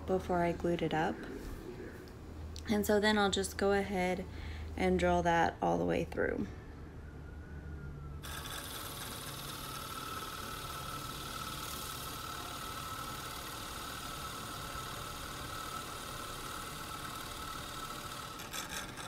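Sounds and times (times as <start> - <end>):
constant whine: 0.0 - 19.0
milling machine cutting wood: 8.2 - 19.0.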